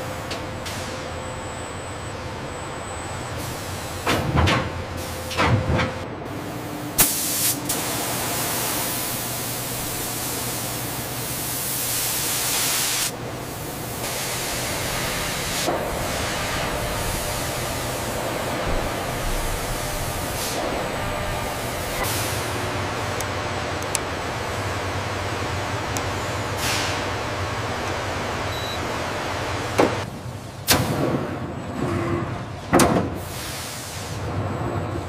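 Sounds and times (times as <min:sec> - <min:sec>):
steady machine hissing: 0:06.4 - 0:30.0.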